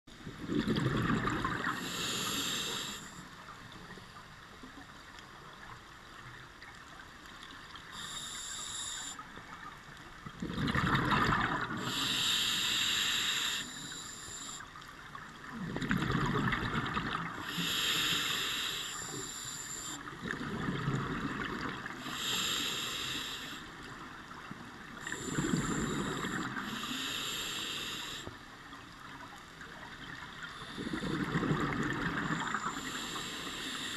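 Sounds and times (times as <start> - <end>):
exhaled bubbles rumbling: 0.2 - 1.9, 10.2 - 12.0, 15.5 - 17.5, 20.1 - 22.0, 30.0 - 32.8
regulator hiss on inhalation: 1.6 - 3.3, 7.9 - 9.3, 11.8 - 14.7, 17.4 - 20.1, 22.0 - 23.8, 25.0 - 28.4, 32.4 - 33.9.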